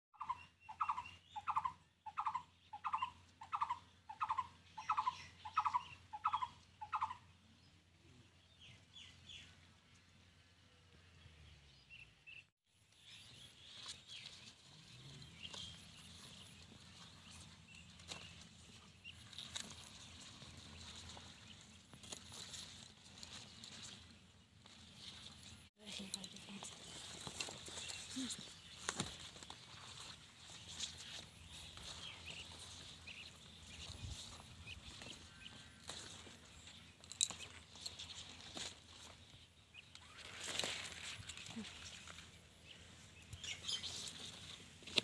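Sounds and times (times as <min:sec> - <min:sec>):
bird calling: 0:00.2 - 0:07.3.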